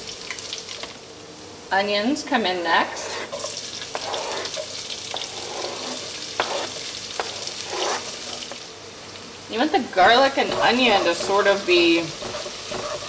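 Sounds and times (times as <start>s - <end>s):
spices sizzling in hot oil: 0.0s - 13.0s
wooden spatula tapping and scraping: 2.9s - 8.6s, 9.9s - 13.0s.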